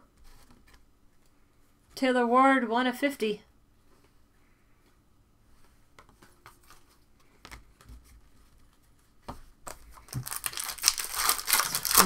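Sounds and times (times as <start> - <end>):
wrapper crinkling and tearing: 10.0 - 12.0.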